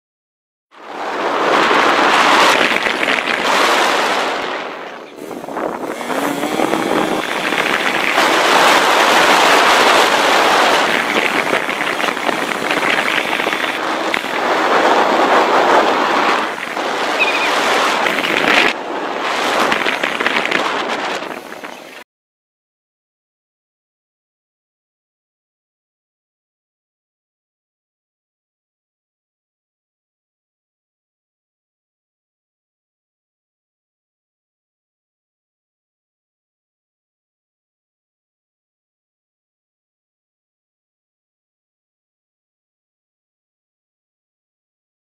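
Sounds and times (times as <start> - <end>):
wind buffeting microphone: 0.9 - 22.0.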